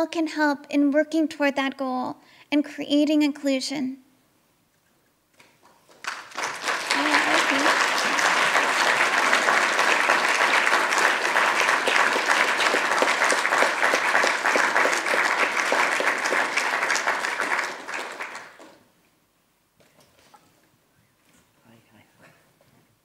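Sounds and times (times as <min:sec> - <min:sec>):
audience applauding: 0:05.6 - 0:18.8.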